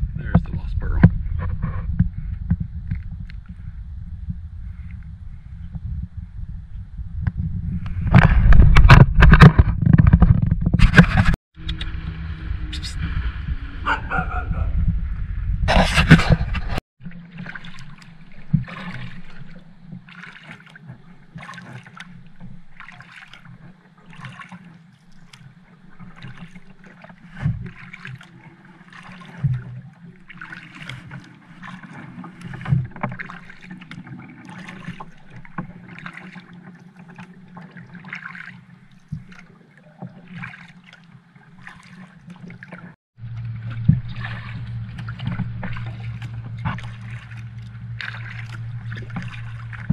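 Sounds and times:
paddle strokes swishing through water: 7.4 - 49.9
steady low hum: 11.6 - 20.1, 43.2 - 49.9.

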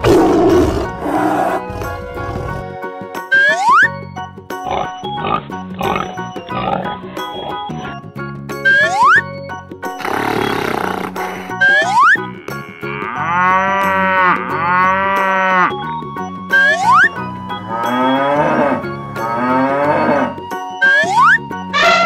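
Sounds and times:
quiet background music: 0.0 - 22.0
cow mooing: 10.0 - 15.8, 17.7 - 20.4.

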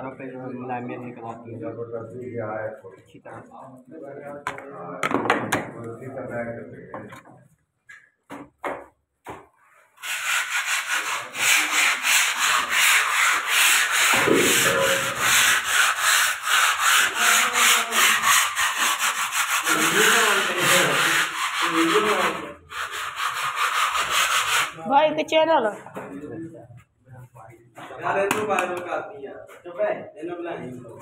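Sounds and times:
hand tool scrubbing cement wall: 9.6 - 24.8.

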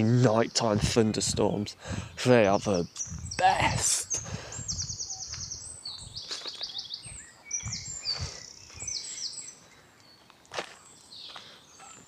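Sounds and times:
songbird trilling: 2.1 - 10.2
footsteps on dirt path: 3.0 - 12.0.

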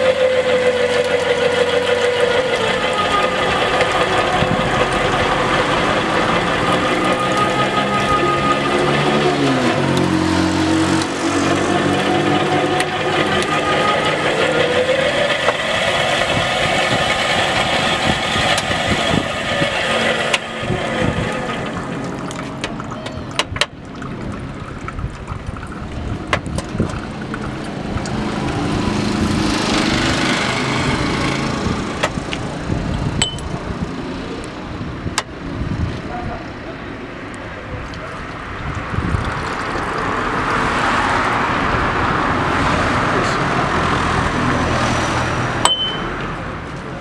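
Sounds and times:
juicer motor humming: 0.0 - 34.7.

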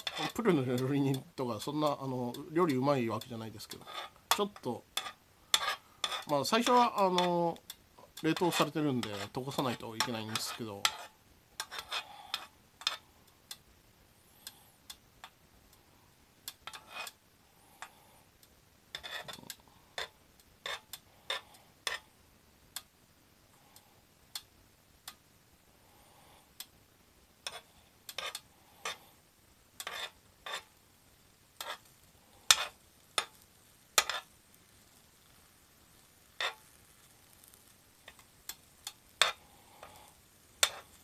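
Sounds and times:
metal spoon scraping hot plate: 0.0 - 1.2, 3.2 - 7.4, 8.2 - 13.0, 16.6 - 17.2, 18.9 - 22.0, 27.4 - 29.0, 29.8 - 30.7, 31.6 - 31.9, 32.5 - 33.4, 34.0 - 34.3, 36.4 - 36.7, 38.8 - 41.0
faint sizzle: 0.0 - 41.0.

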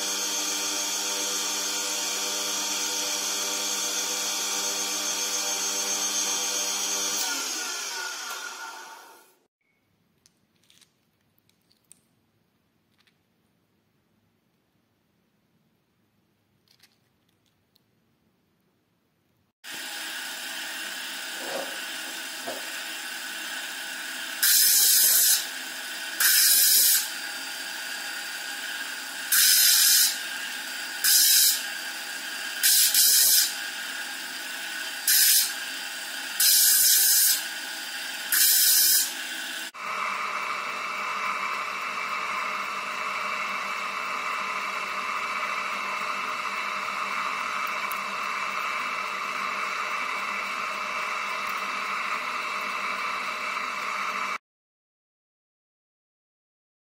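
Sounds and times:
stone grinding on wheel: 21.2 - 23.6, 24.4 - 27.2, 29.3 - 39.8.

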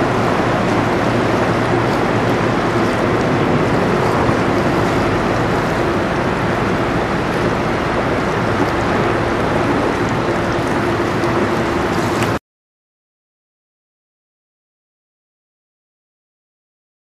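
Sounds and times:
constant low hum: 0.0 - 12.4
steady wind: 0.0 - 12.4
water washing against shore: 0.0 - 12.4.

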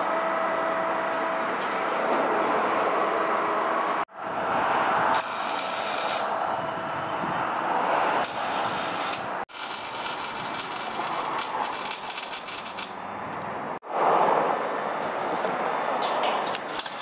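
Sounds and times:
hiss bursts: 5.2 - 6.3, 8.2 - 12.9
ratchet wrench clicking: 8.3 - 13.0.

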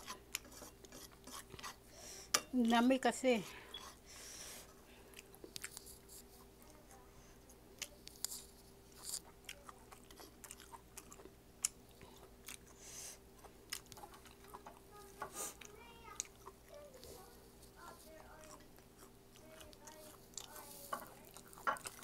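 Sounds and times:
person chewing fried food: 0.1 - 1.9, 5.0 - 6.5, 7.8 - 22.0.

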